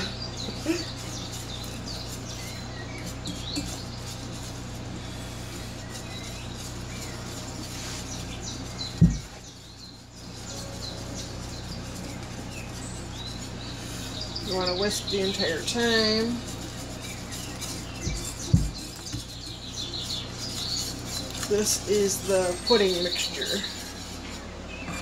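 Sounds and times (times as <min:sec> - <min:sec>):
wire whisk stirring: 0:00.0 - 0:24.5
steady low hum: 0:00.0 - 0:25.0.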